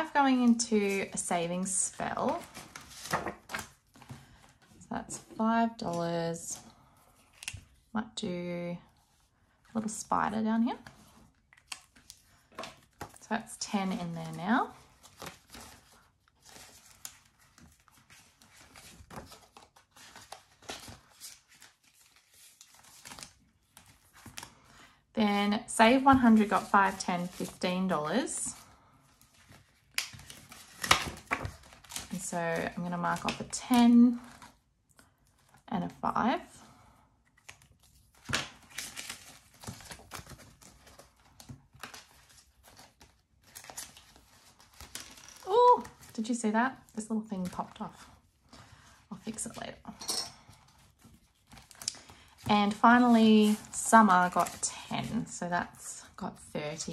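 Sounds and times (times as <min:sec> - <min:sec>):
plastic envelope rustling: 0:00.4 - 0:05.3, 0:10.8 - 0:24.8, 0:25.7 - 0:34.6, 0:37.4 - 0:49.6, 0:50.4 - 0:56.2
plastic pockets crinkling: 0:37.4 - 0:46.2.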